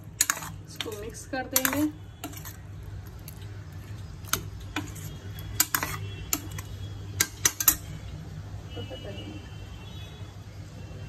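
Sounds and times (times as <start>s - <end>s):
ladle scraping metal pot: 0.0s - 2.7s, 4.3s - 7.9s.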